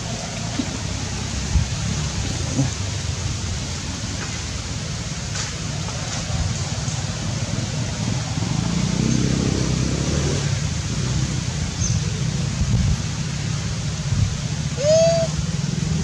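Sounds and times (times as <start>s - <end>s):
motor vehicle passing: 6.7s - 14.0s.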